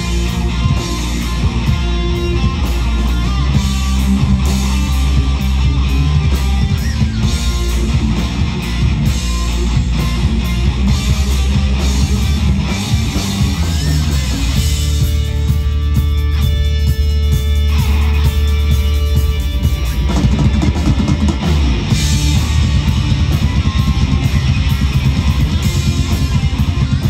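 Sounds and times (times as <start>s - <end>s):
live rock band playing: 0.0s - 27.0s.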